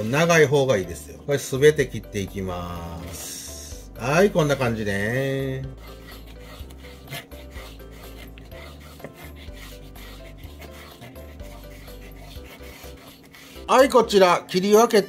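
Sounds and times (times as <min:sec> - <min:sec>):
quiet background music: 0:00.0 - 0:15.0
knife cutting meat on board: 0:05.7 - 0:13.7.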